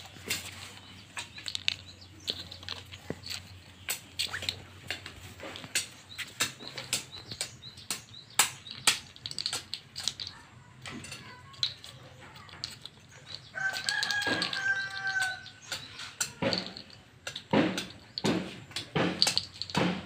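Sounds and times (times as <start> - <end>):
plastic pieces clicking on concrete: 0.0 - 20.0
rooster crowing: 13.5 - 15.6.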